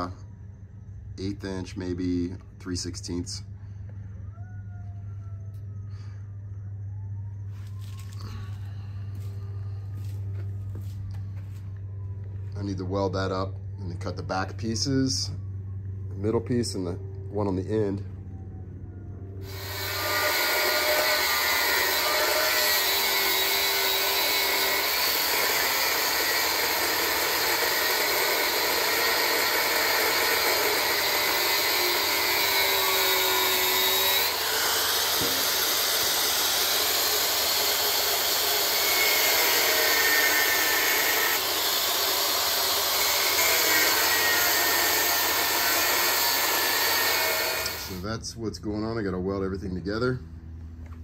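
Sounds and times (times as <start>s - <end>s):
angle grinder cutting steel: 19.4s - 48.1s.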